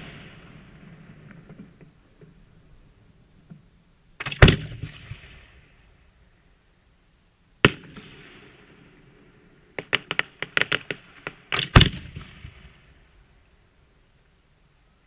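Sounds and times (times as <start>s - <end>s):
crackling firework pops: 9.8s - 12.7s.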